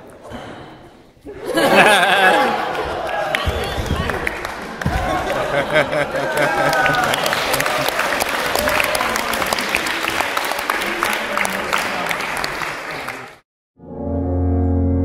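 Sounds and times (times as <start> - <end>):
small crowd applauding: 1.9 - 13.4.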